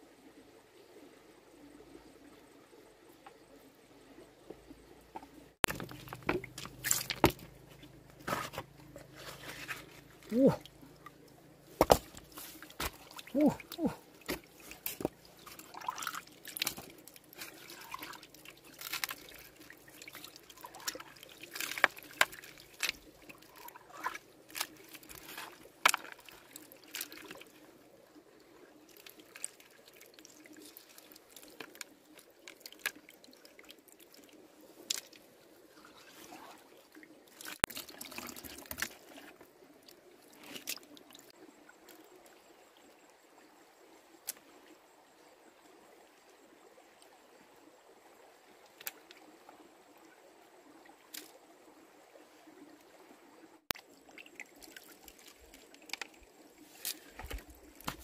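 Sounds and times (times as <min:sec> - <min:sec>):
water dripping: 0:05.1 - 0:08.2, 0:10.2 - 0:27.6
hands splashing in muddy water: 0:11.7 - 0:27.5.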